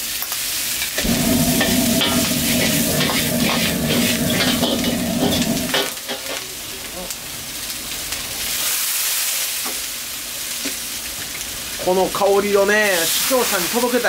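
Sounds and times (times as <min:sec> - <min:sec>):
food sizzling in a wok: 0:00.0 - 0:14.0
loud low hum: 0:01.0 - 0:05.9.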